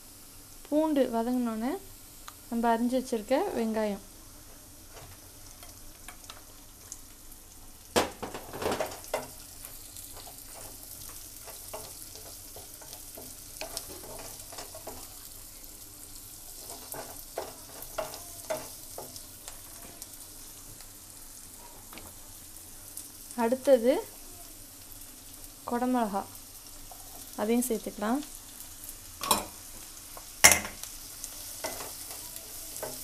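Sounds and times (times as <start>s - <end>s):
onions frying in oil: 0.0s - 33.0s.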